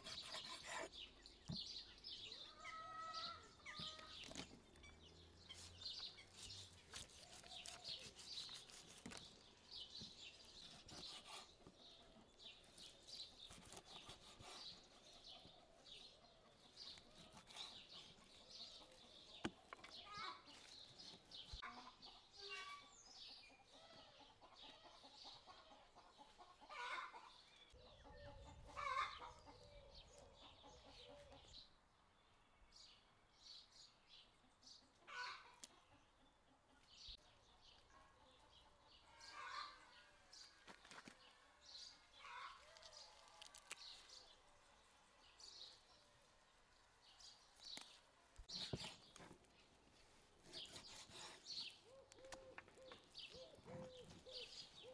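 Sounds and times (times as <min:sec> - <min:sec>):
chickens clucking: 0:23.4 - 0:31.4
bird calls: 0:50.5 - 0:54.9.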